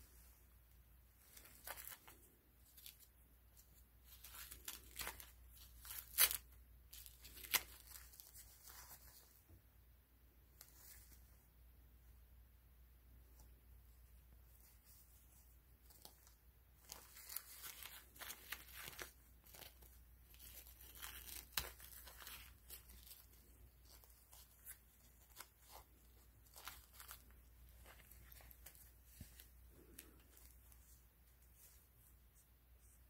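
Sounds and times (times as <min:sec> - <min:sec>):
diaper plastic crinkling: 0:01.2 - 0:09.4, 0:14.6 - 0:31.8.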